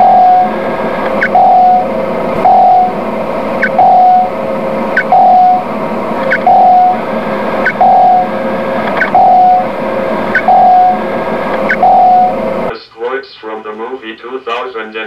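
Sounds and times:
electronic sonar pings: 0.0s - 0.6s, 1.2s - 3.0s, 3.6s - 4.3s, 5.0s - 5.6s, 6.3s - 7.0s, 7.6s - 8.3s, 9.0s - 9.7s, 10.4s - 11.0s, 11.7s - 12.4s.

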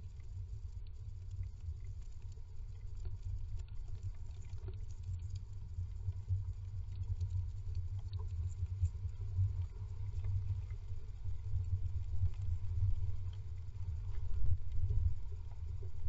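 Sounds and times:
low rumble: 6.5s - 16.0s.

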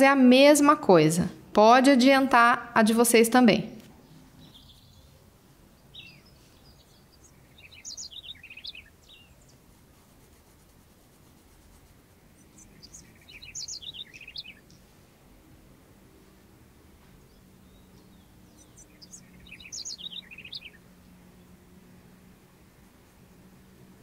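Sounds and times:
bird chirping: 4.0s - 9.8s, 11.7s - 14.9s, 17.1s - 21.6s.

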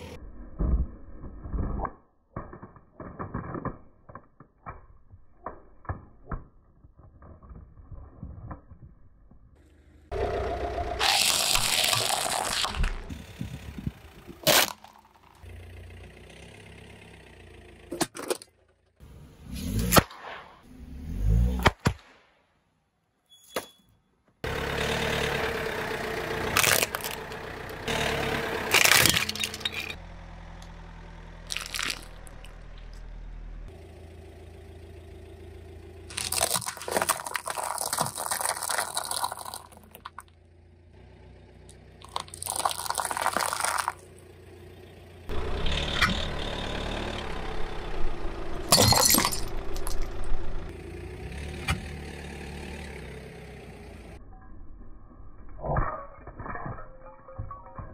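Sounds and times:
tyre crushing objects: 31.5s - 32.3s, 36.1s - 40.2s, 42.0s - 44.0s.

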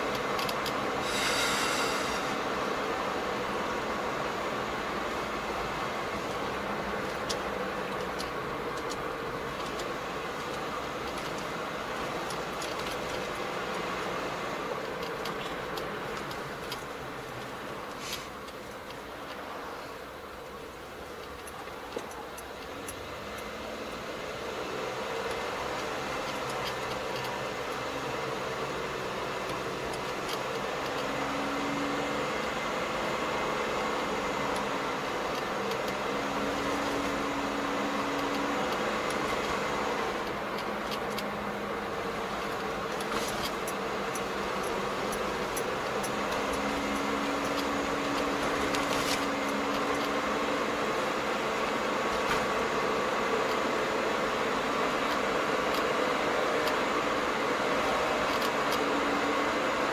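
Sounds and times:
car cabin engine and road noise: 0.0s - 59.9s
low drone: 1.0s - 2.6s.

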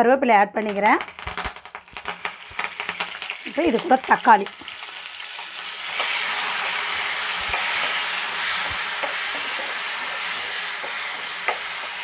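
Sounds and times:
tomatoes sizzling in oil: 0.6s - 12.0s.

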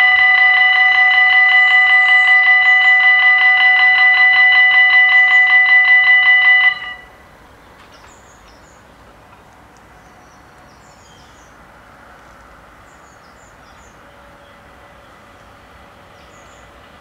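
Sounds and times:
level crossing bells ringing: 0.0s - 7.2s.

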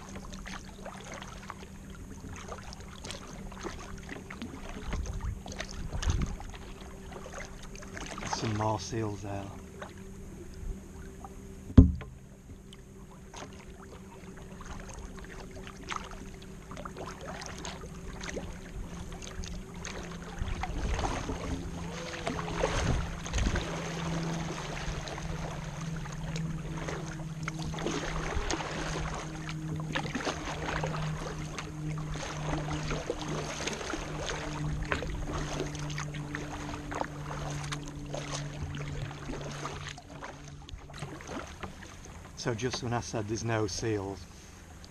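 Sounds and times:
paddle splashing in water: 0.0s - 10.1s, 10.9s - 44.9s
steady low hum: 0.0s - 44.9s
sharp knock: 11.8s - 12.2s.

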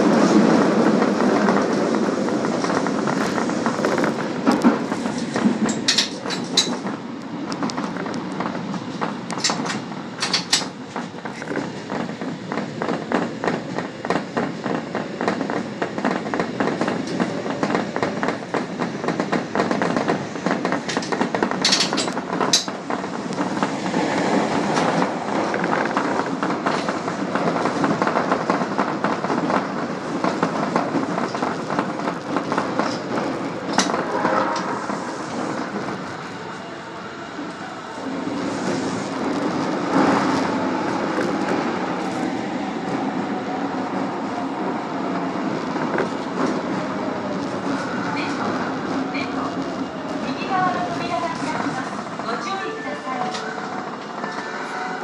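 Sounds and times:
clatter over track: 0.0s - 36.3s
subway train wheels rumbling: 0.0s - 55.0s.

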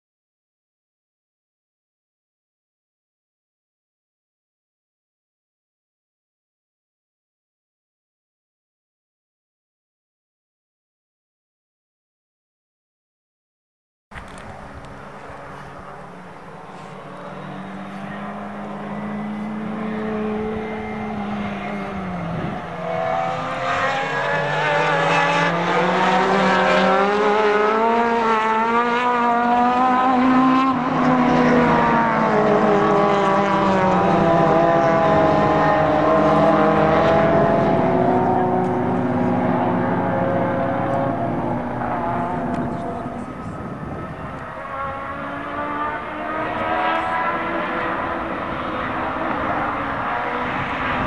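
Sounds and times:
racing car engines revving: 14.3s - 51.0s.

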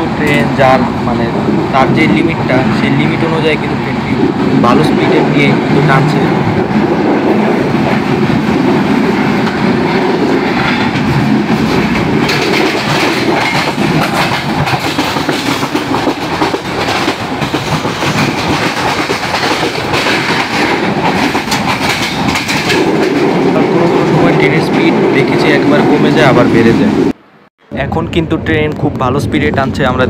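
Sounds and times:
train wheels rumbling on rails: 0.0s - 30.0s
wheels clacking over rail joints: 6.5s - 23.8s.

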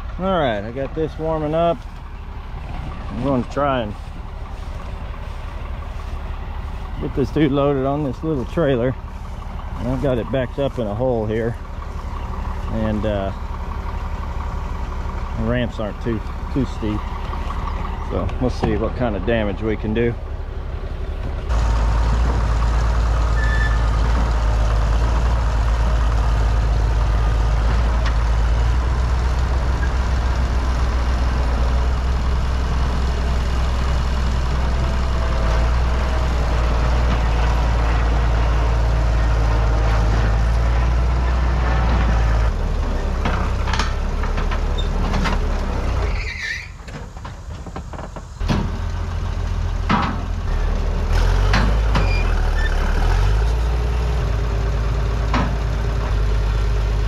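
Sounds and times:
dozer diesel engine: 0.0s - 57.0s.

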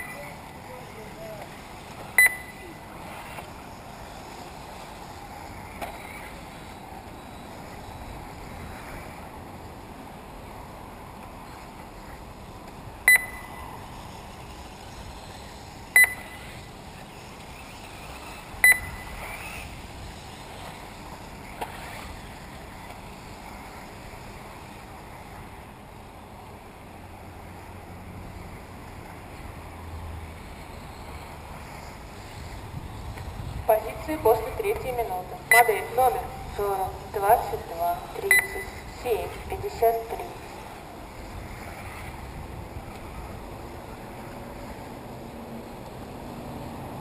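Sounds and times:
steady background hiss: 0.0s - 47.0s
sharp electronic beeps: 2.2s - 2.8s, 13.1s - 13.6s, 16.0s - 16.6s, 18.6s - 19.2s, 33.7s - 40.3s.

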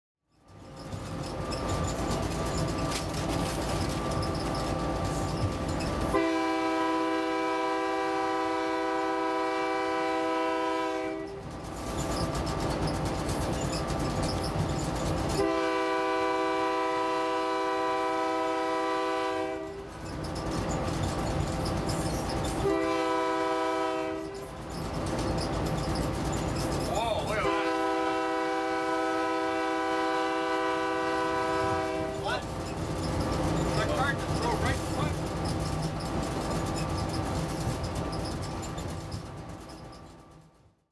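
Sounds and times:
train wheels on rails: 0.3s - 40.9s
locomotive horn chord blasts: 6.1s - 11.4s, 15.4s - 19.9s, 22.6s - 24.4s, 27.4s - 32.3s.

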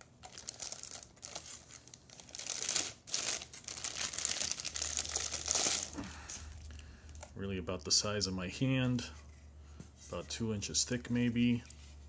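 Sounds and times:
plastic bag crinkling: 0.2s - 7.2s.

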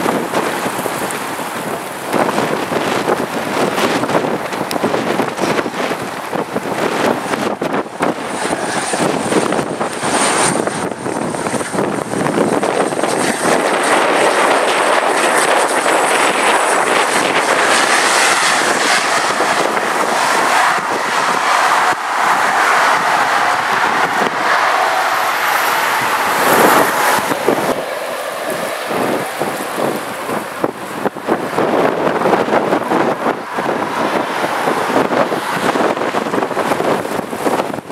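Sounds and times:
high turbine whine: 0.0s - 37.9s
propeller and engine rush: 0.0s - 37.9s.

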